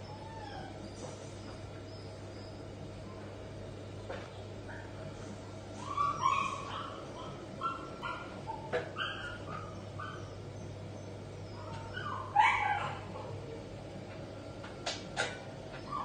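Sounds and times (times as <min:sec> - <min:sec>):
puppy yipping and whimpering: 0:00.0 - 0:00.9, 0:05.8 - 0:10.4, 0:11.5 - 0:13.3, 0:15.8 - 0:16.0.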